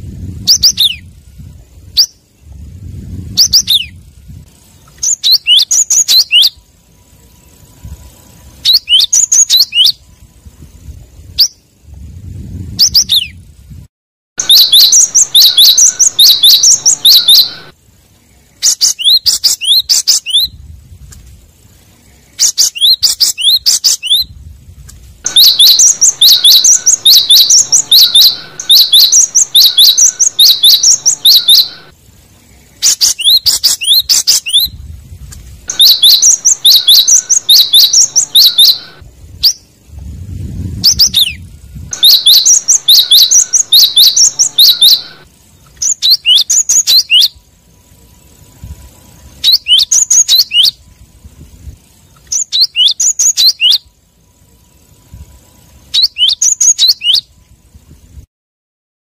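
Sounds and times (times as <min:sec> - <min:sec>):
low rumble: 0:34.7 - 0:43.0.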